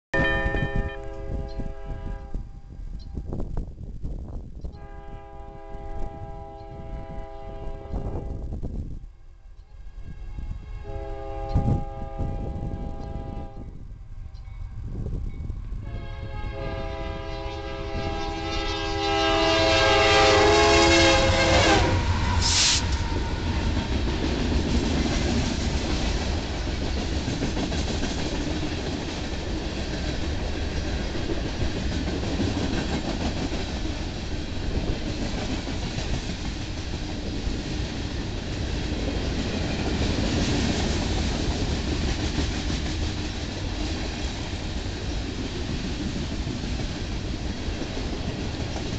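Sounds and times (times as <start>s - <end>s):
locomotive horn: 0.1s - 2.5s, 4.7s - 8.5s, 10.0s - 13.8s, 15.8s - 23.4s
train cars rumbling past: 9.8s - 48.9s
train wheel clatter: 20.3s - 48.9s.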